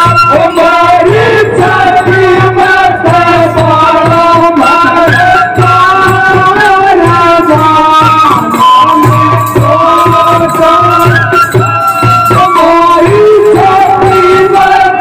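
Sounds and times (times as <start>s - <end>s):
folk melody line: 0.0s - 15.0s
frame drums beating: 0.0s - 15.0s
person singing: 0.0s - 15.0s.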